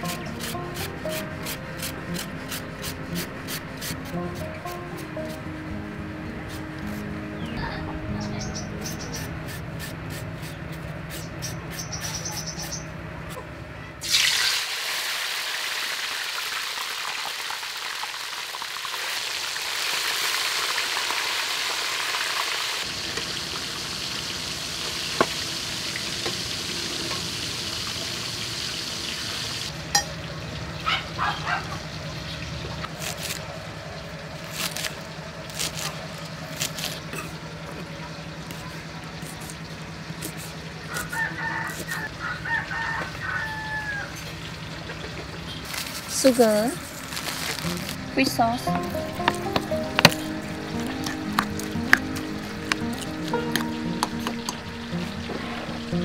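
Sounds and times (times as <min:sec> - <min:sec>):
food sizzling in oil: 0:14.0 - 0:29.7.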